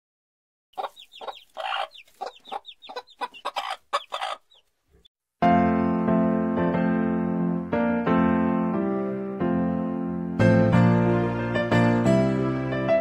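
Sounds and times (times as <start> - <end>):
hens clucking: 0.8 - 4.7
piano music: 5.4 - 13.0.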